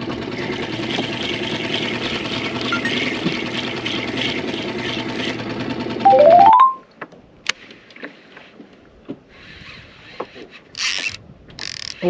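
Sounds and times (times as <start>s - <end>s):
outboard motor running: 0.0s - 6.0s, 7.6s - 12.0s
rising electronic beeps: 6.1s - 6.8s.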